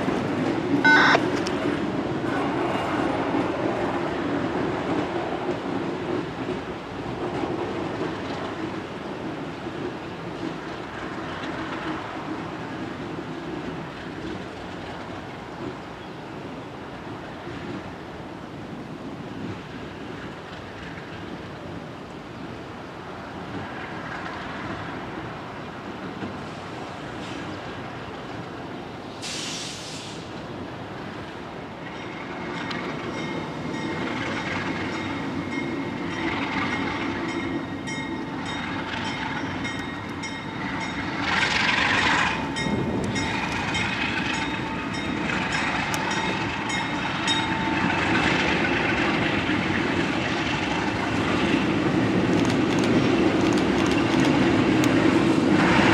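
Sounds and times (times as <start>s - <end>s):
brief hiss: 29.2s - 30.4s.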